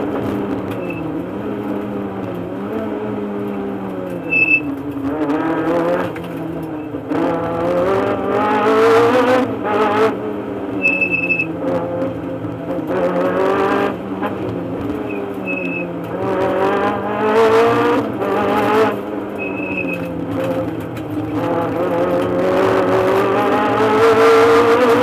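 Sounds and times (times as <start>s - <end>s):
rally car engine revving: 0.0s - 25.0s
short high beep: 0.8s - 1.1s, 4.2s - 4.7s, 10.8s - 11.5s, 15.1s - 15.8s, 19.4s - 20.0s.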